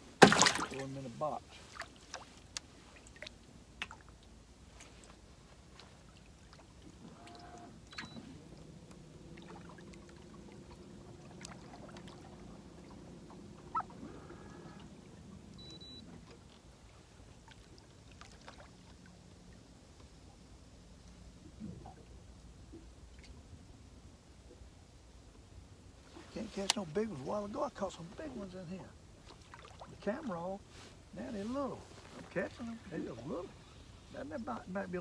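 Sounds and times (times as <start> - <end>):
low motor hum: 6.7 - 17.5.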